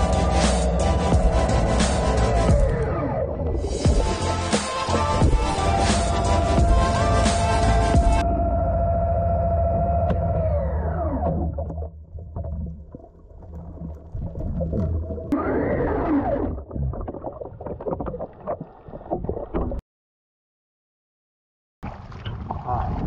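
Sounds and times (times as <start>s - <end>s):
muffled underwater rumble: 5.0s - 19.8s.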